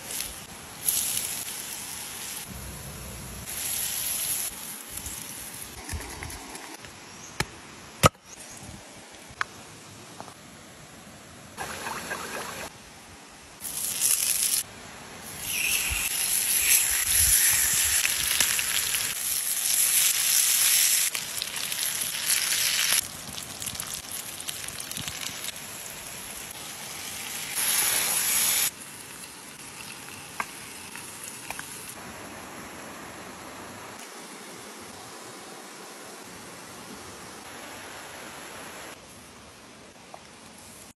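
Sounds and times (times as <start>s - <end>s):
fish sizzling on hot stone: 0.0s - 2.6s, 3.4s - 5.8s, 13.6s - 14.6s, 15.2s - 32.0s
running water: 11.6s - 12.7s.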